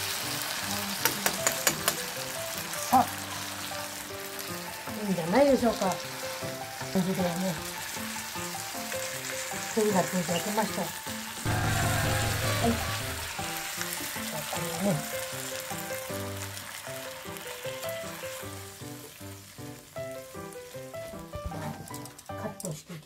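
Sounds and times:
food sizzling in a frying pan: 0.0 - 23.0
low rumble: 11.5 - 13.7.

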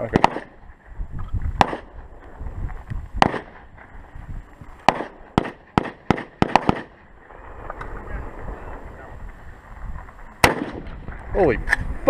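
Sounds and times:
gunshots: 0.0 - 0.6, 1.6 - 2.0, 3.2 - 3.7, 4.8 - 8.8, 10.4 - 11.1.

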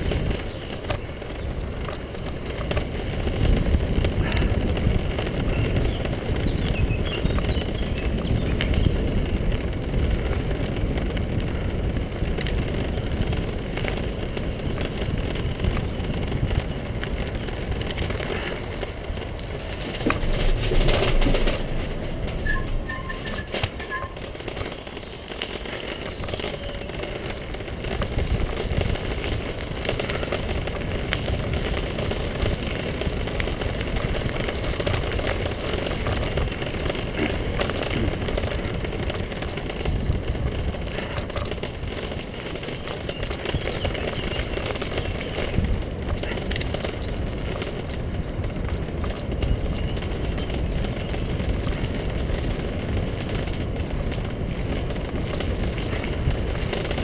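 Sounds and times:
wheels rolling over gravel: 0.0 - 57.0.

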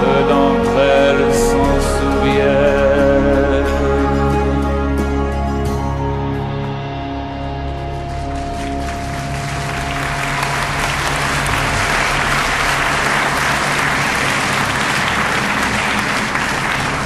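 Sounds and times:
music: 0.0 - 17.0
audience applause: 8.0 - 17.0.

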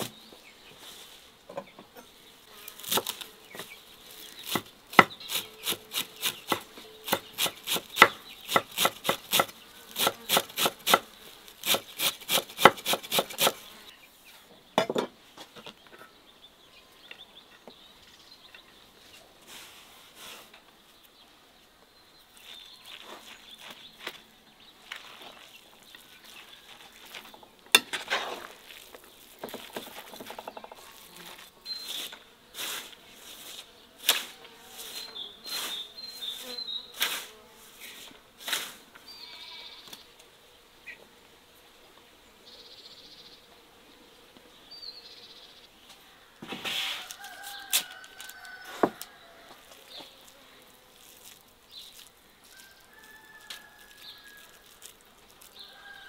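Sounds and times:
birds chirping faintly: 0.0 - 12.0, 13.2 - 19.5, 20.6 - 27.7, 28.4 - 37.2
hands kneading meat mixture: 51.0 - 55.8.

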